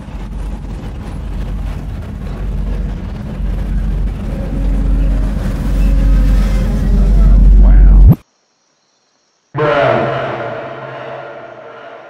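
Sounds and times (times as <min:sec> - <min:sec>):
large ship rumble: 0:00.0 - 0:08.2, 0:09.6 - 0:12.0
faint tone: 0:04.2 - 0:08.2.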